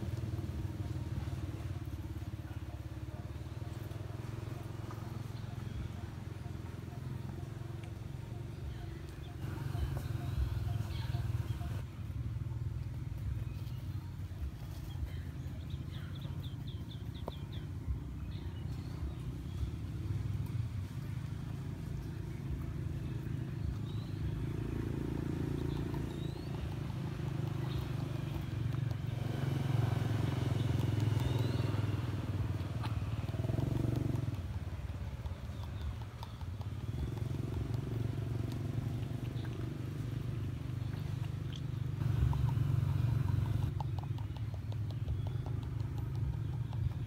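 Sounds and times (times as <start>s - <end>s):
porcupine chewing: 25.5s - 29.1s, 32.5s - 47.0s.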